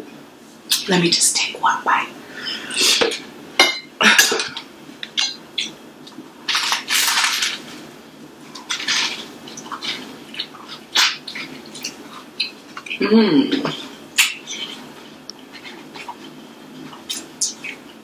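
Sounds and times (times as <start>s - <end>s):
wet eating mouth sounds: 8.5s - 18.0s.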